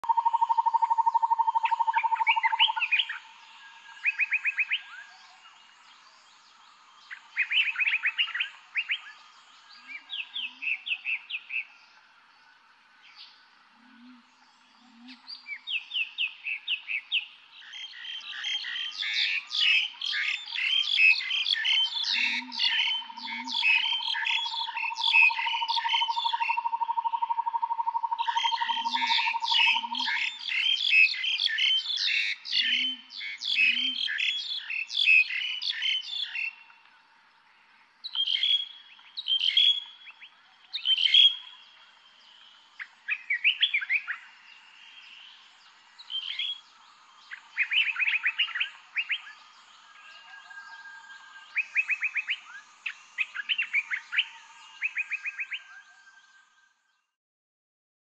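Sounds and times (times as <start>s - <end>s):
bird trill: 0.0s - 3.3s, 18.3s - 36.5s
birds chirping and singing: 0.0s - 12.0s, 13.0s - 36.9s, 37.5s - 57.0s.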